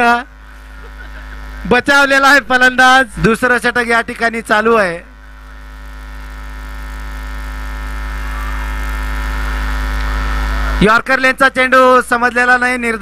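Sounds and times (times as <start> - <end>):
electrical mains hum: 0.0 - 13.0
commentator speaking: 1.6 - 5.1, 10.8 - 13.0.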